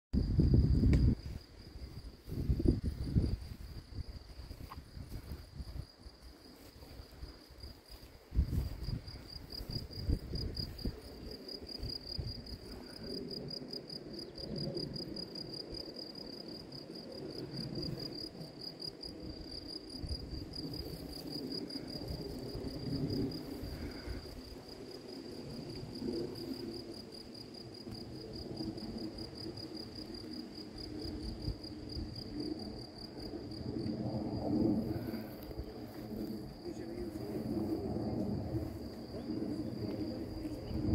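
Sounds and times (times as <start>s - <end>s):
crickets chirping: 0.2s - 40.9s
wind gusts on microphone: 0.2s - 40.9s.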